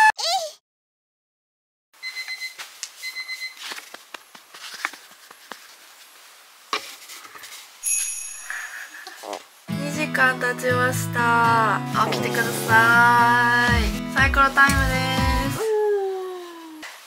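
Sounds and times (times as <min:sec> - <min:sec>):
short bright high tone: 0:11.9 - 0:13.7.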